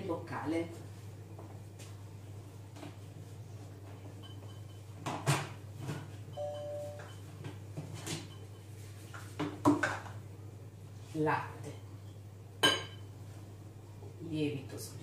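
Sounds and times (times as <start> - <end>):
short electronic beep: 6.4 - 7.2.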